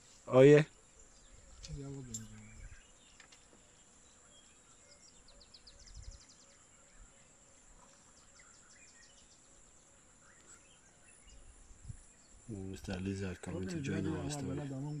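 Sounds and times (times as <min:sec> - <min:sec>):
faint chirping ticks: 0:00.1 - 0:14.5.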